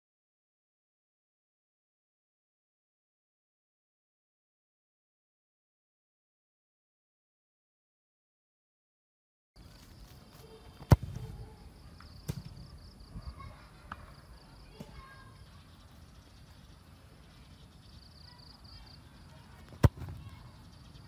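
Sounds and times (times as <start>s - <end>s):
football kicked with thud: 10.7s - 11.5s, 12.2s - 12.7s, 19.7s - 20.4s.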